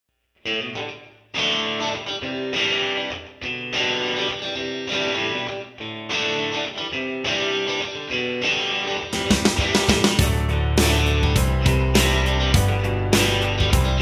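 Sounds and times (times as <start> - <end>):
guitar playing chords: 0.4 - 14.0
background music: 9.1 - 14.0.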